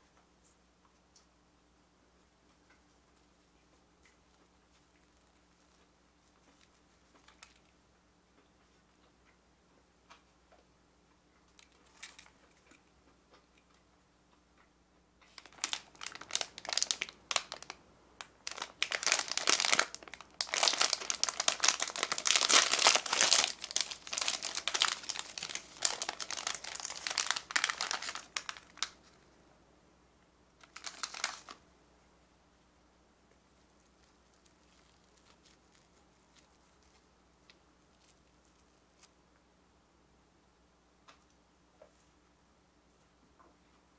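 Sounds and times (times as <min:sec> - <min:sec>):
plastic wrapper crinkling: 0:04.7 - 0:07.7, 0:11.6 - 0:12.8, 0:15.2 - 0:29.2, 0:30.6 - 0:31.6, 0:33.5 - 0:39.1.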